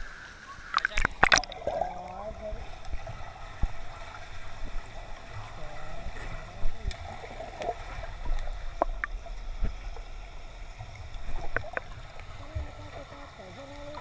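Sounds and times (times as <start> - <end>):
muffled underwater water movement: 0.0 - 14.0
bubbling: 0.6 - 14.0.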